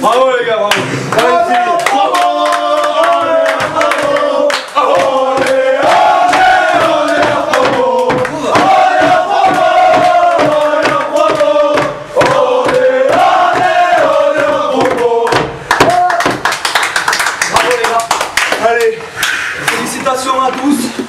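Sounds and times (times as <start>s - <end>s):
hand-clapping: 0.0s - 19.9s
crowd of men chanting: 1.1s - 15.6s
men shouting: 1.1s - 16.3s.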